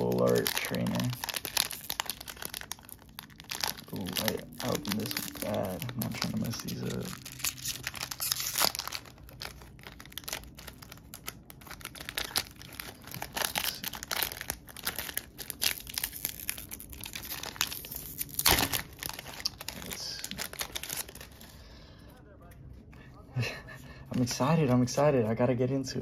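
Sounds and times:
foil wrapper crinkling and tearing: 0:00.0 - 0:21.6.

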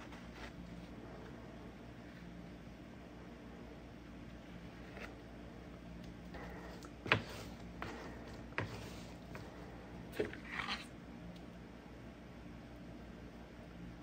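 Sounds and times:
plastic spreader scraping filler: 0:06.8 - 0:09.4.

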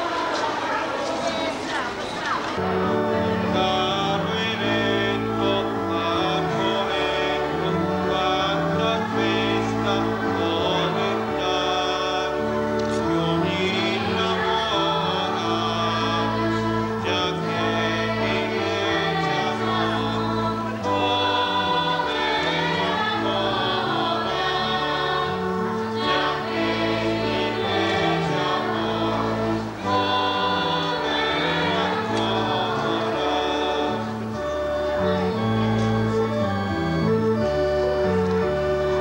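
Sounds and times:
choir singing held notes: 0:00.0 - 0:39.0
instrumental accompaniment: 0:02.6 - 0:39.0.

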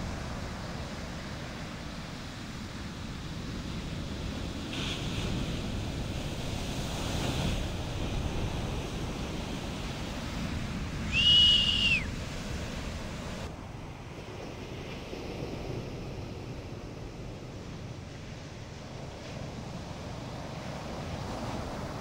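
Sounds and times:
waves washing on beach: 0:00.0 - 0:22.0
high whistle: 0:11.0 - 0:12.1.

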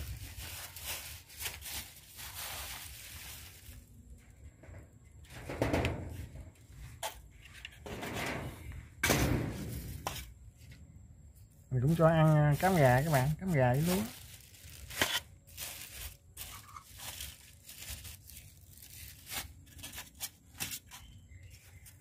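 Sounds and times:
bird cage knocking and rattling: 0:05.3 - 0:06.2.

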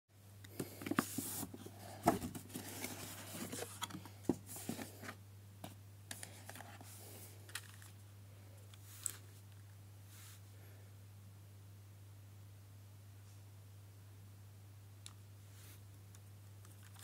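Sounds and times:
cardboard box being handled: 0:00.8 - 0:05.2.

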